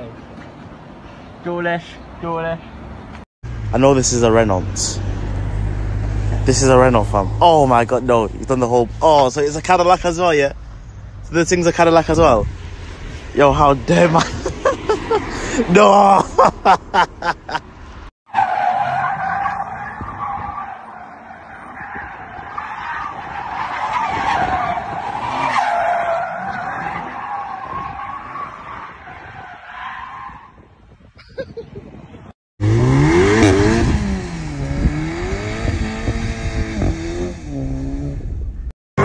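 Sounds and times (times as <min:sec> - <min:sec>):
car tyres squealing: 0:03.8 - 0:30.7
car engine revving: 0:32.6 - 0:38.4.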